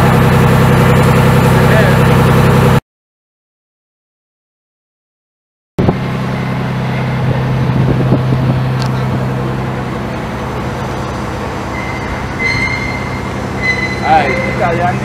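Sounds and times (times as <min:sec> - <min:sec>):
large engine humming: 0:00.0 - 0:02.8, 0:05.8 - 0:15.0.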